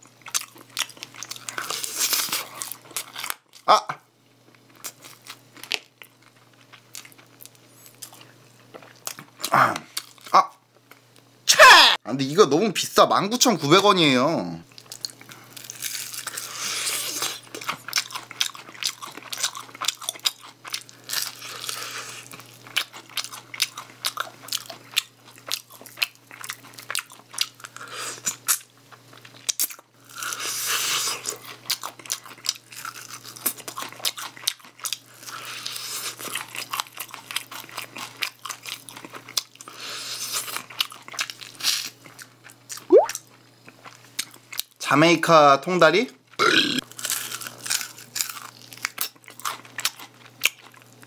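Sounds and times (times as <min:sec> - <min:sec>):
crunching bites and chewing: 0:00.2 - 0:03.7, 0:14.7 - 0:44.8, 0:46.3 - 0:51.0.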